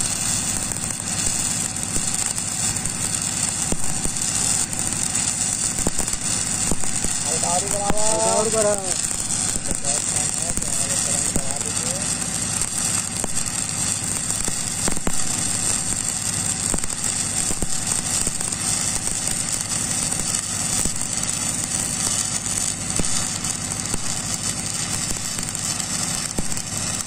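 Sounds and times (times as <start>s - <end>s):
steady low hum: 0.0s - 17.9s
welding arc crackling and sizzling: 0.0s - 27.0s.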